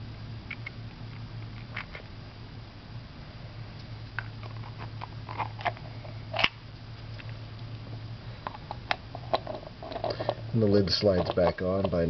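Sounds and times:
low steady hum: 0:00.0 - 0:12.0
plastic parts clicking and scraping: 0:08.4 - 0:10.4.

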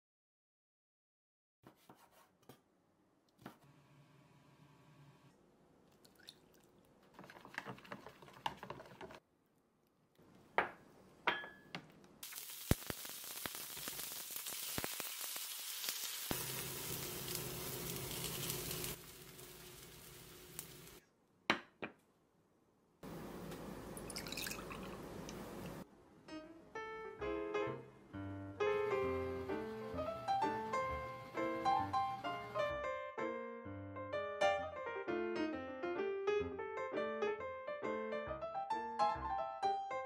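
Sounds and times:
liquid pouring into ceramic bowl: 0:06.0 - 0:08.4, 0:24.0 - 0:25.4
spoon stirring batter in bowl: 0:07.0 - 0:09.2
batter sizzling in oil: 0:12.2 - 0:21.0.

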